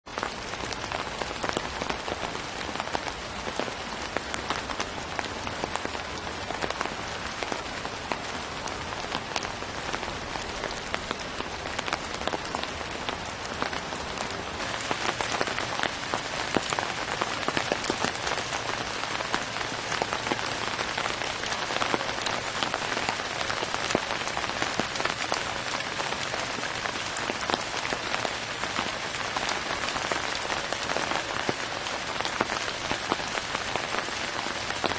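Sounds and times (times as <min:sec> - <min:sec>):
floodwater rushing over rocks: 0:10.0 - 0:26.4.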